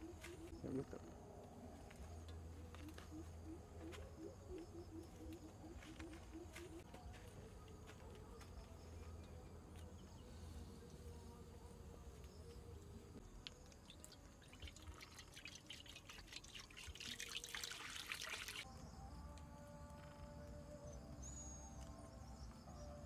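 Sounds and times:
water pouring into a wok: 13.8 - 18.6.

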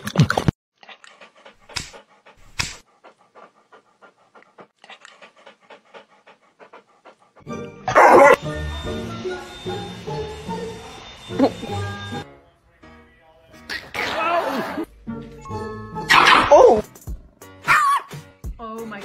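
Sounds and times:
dog panting: 0.8 - 7.8.

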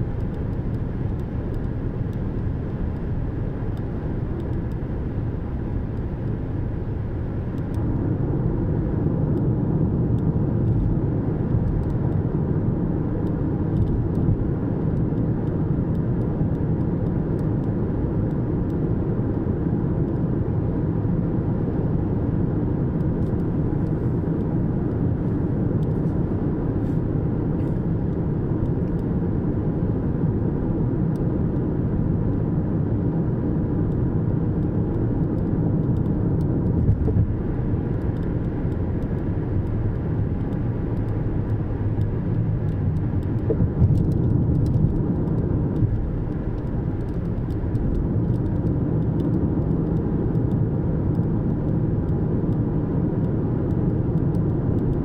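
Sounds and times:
car driving rumble: 34.0 - 55.0.

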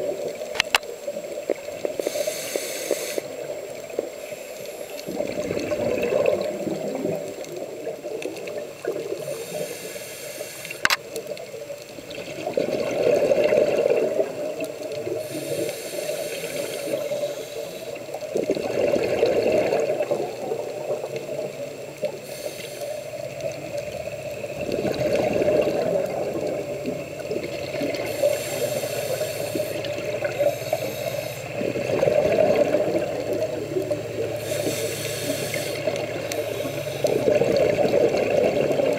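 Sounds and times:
diver breathing through regulator: 2.0 - 3.4, 9.1 - 11.0, 15.1 - 18.2, 22.1 - 23.3, 27.8 - 31.7, 34.3 - 37.8.

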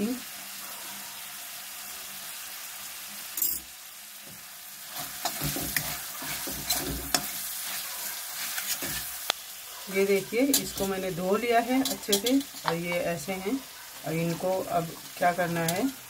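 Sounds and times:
masala sizzling in oil: 0.0 - 16.0
spatula scraping a pan: 4.8 - 16.0.

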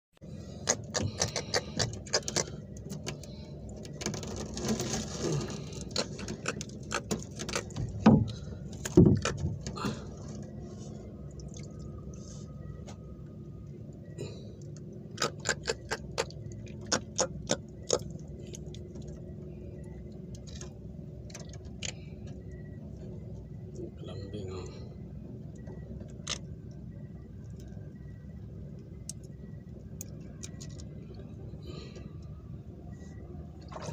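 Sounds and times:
steady low rumble: 0.2 - 33.9
fish knocking and rattling in boat: 0.6 - 10.6.

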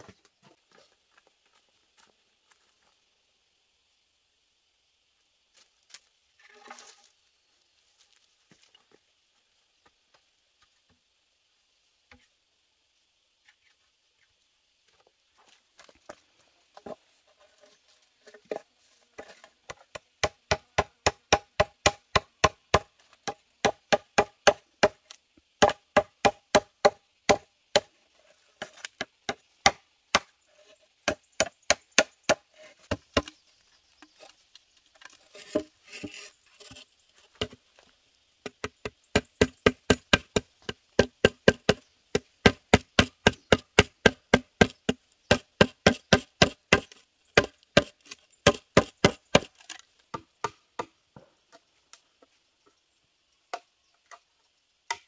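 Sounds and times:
machete chopping bamboo: 19.7 - 27.9, 28.6 - 30.3, 31.1 - 33.4, 38.4 - 51.0.

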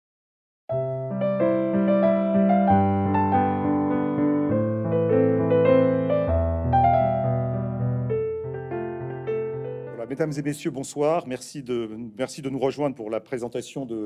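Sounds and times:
piano music: 0.7 - 11.4.

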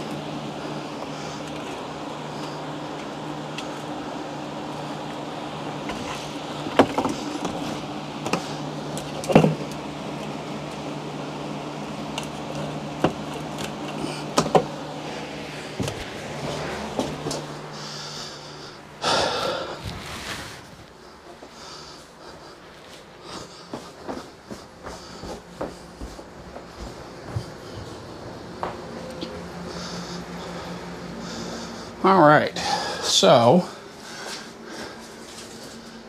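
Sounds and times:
steady low hum: 0.0 - 36.0
rushing scrape: 19.5 - 21.6.

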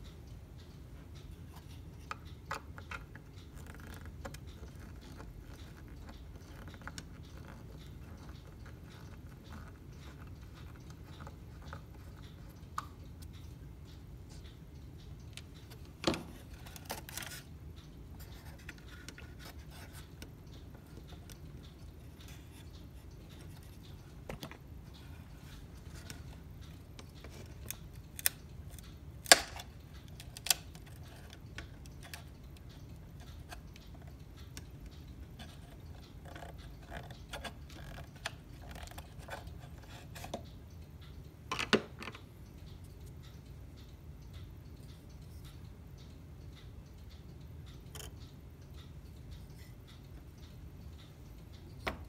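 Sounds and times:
steady low hum: 0.0 - 52.0.

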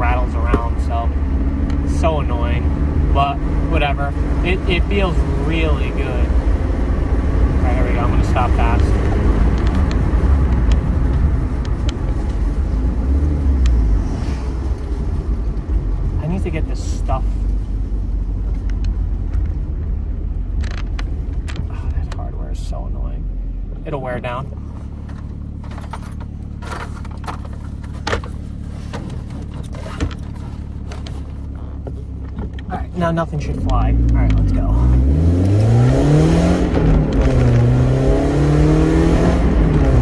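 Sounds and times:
car cabin hum: 0.0 - 40.0
road and tyre rumble: 0.0 - 40.0
light rattling clicks: 20.5 - 22.2.

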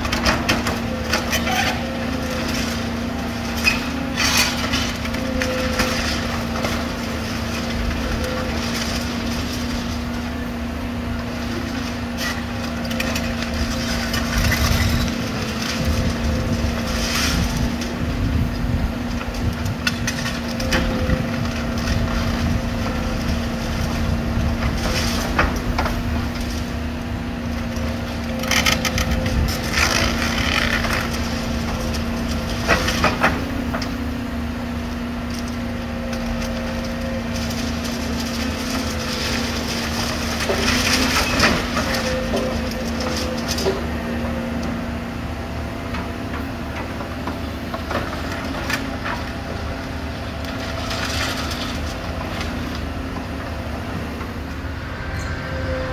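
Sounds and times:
diesel engine running under load: 0.0 - 55.9.

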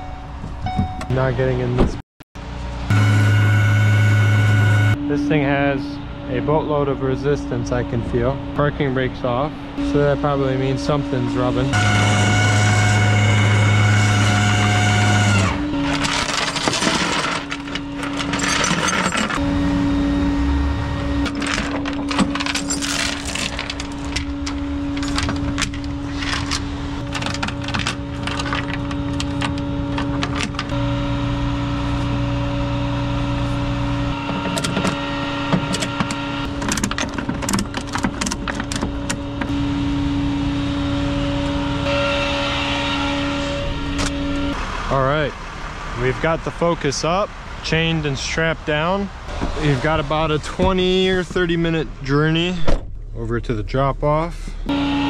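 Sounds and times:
truck engine idling: 2.4 - 16.5, 17.1 - 53.1
chains clanking on metal deck: 15.9 - 19.4, 21.2 - 29.0.

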